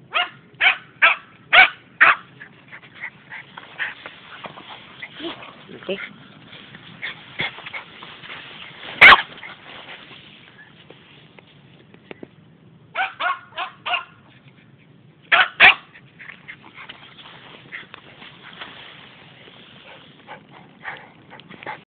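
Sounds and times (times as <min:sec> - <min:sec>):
small dog barking: 0:00.1 - 0:02.3, 0:09.0 - 0:09.5, 0:12.9 - 0:14.2, 0:15.3 - 0:15.9.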